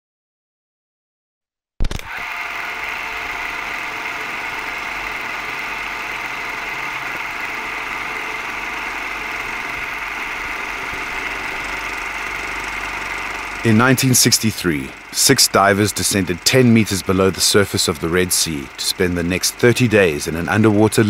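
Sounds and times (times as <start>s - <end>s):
mechanical drone with hiss: 2.2s - 21.0s.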